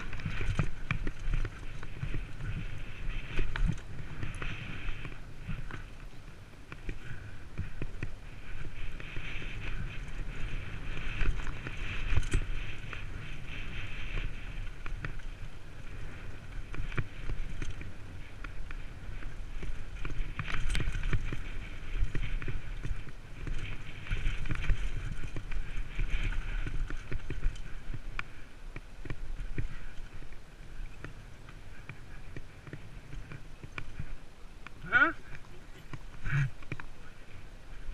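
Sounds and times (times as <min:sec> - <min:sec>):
bike knocking on bumps: 0:00.0 - 0:37.0
bike tyres rattling on gravel: 0:00.0 - 0:37.9
wind buffeting microphone: 0:00.0 - 0:37.9.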